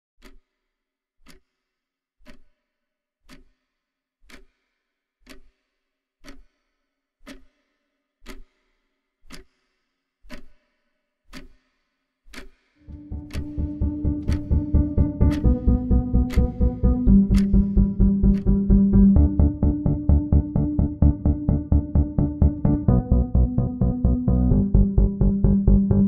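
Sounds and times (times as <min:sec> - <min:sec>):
clock ticking with ringing tone: 0:01.2 - 0:01.4, 0:02.2 - 0:02.5, 0:04.3 - 0:04.5, 0:05.3 - 0:05.5, 0:06.2 - 0:06.5, 0:07.2 - 0:07.5, 0:08.3 - 0:08.6, 0:09.3 - 0:09.6, 0:10.3 - 0:10.6, 0:12.3 - 0:26.0.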